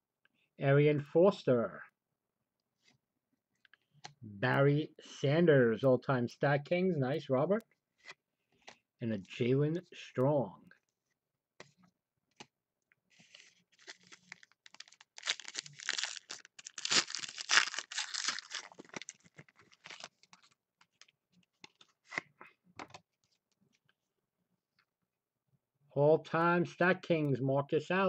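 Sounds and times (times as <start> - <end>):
cards rustling: 13.1 - 23.4
wrapper crinkling and tearing: 13.3 - 21.1
blade slitting wrapper: 13.7 - 20.5.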